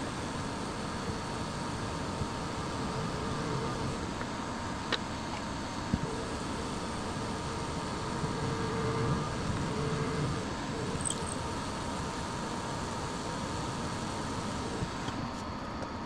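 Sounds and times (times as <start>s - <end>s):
drill bit drilling holes: 0.0s - 4.2s, 6.0s - 15.0s
milling machine motor whine: 0.0s - 16.0s.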